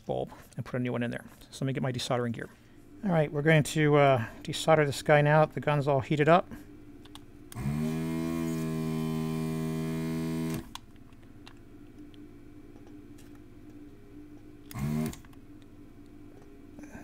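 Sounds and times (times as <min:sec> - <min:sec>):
desoldering pump buzzing: 0:07.5 - 0:10.8, 0:14.6 - 0:15.4.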